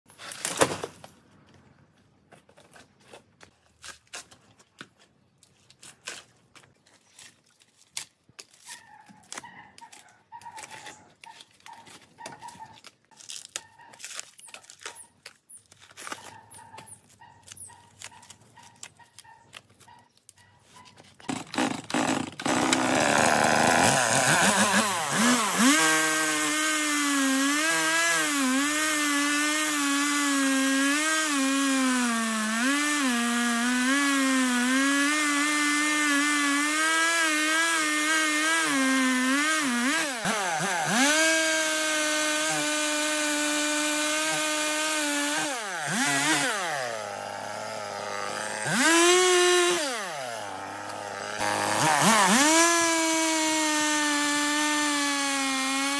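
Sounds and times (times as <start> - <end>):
wood cracking and snapping: 21.1 - 26.8
chainsaw revving: 21.3 - 55.9.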